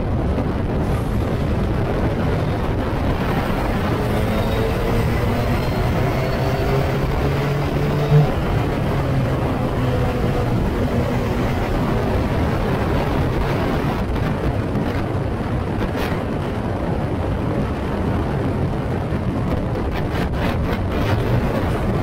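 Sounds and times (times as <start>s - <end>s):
wind buffeting microphone: 0.0s - 22.0s
racing car engine: 0.3s - 16.6s.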